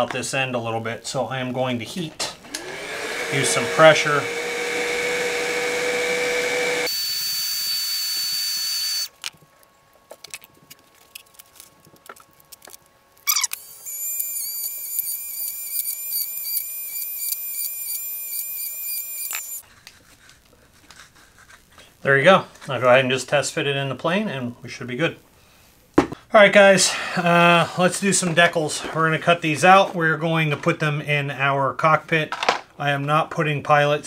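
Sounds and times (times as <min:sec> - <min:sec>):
heat gun whining: 0:02.4 - 0:09.2, 0:13.3 - 0:19.6.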